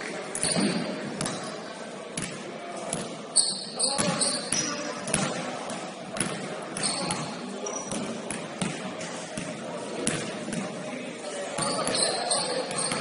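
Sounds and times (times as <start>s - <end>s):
basketball bouncing on gym floor: 0.5s - 1.5s, 7.9s - 8.8s
high squeak: 3.4s - 4.5s.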